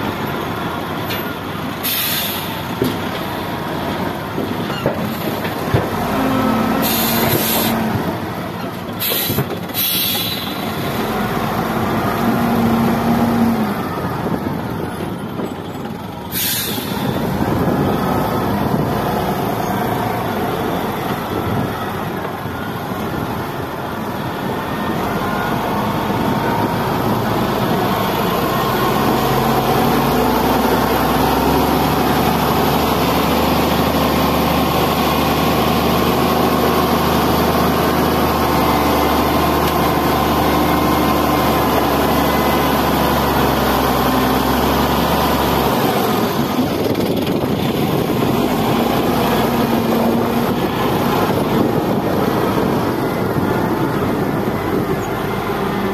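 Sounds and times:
diesel engine running hard: 0:00.0 - 0:55.9
short hisses: 0:01.8 - 0:02.6, 0:16.3 - 0:17.1.

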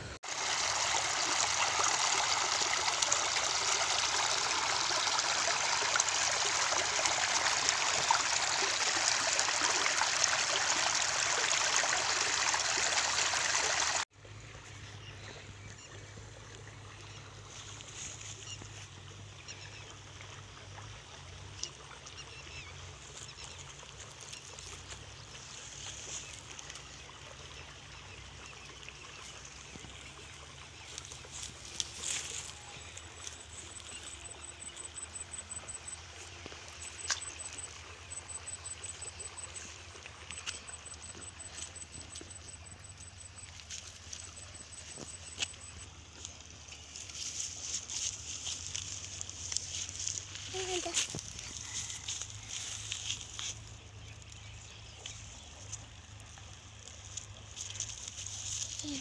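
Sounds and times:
stream water rushing: 0:00.0 - 0:14.1, 0:26.0 - 0:54.3.

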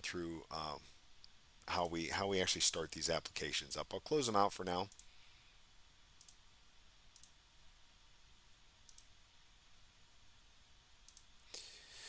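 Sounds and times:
computer mouse clicks: 0:04.9 - 0:05.2, 0:06.2 - 0:06.4, 0:07.1 - 0:07.4, 0:08.8 - 0:09.1, 0:11.0 - 0:11.6.

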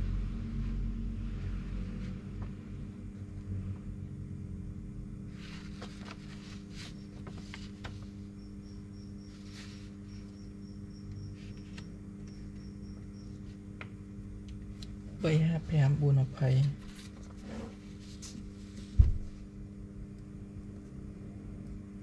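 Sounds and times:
low electrical hum: 0:00.0 - 0:22.0
paper rustling: 0:05.3 - 0:08.3, 0:09.3 - 0:10.2, 0:16.6 - 0:19.0.

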